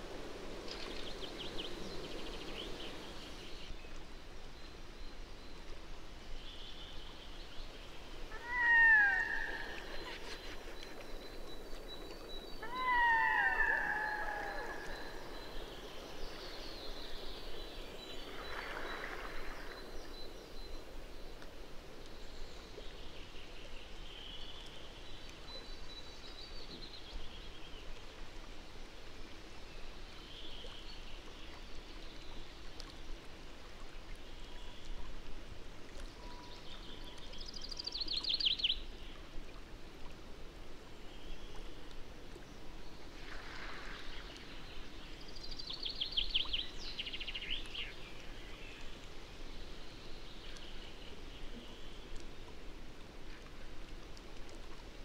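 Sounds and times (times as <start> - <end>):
wind hiss: 0.0 - 4.9
rippling lake water: 0.0 - 55.0
faint bird calls: 8.2 - 16.4.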